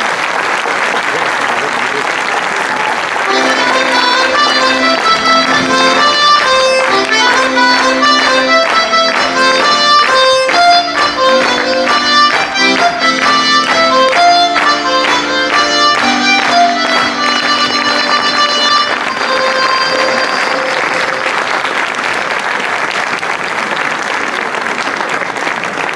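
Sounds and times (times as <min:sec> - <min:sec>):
folk dance tune: 0:03.2 - 0:22.6.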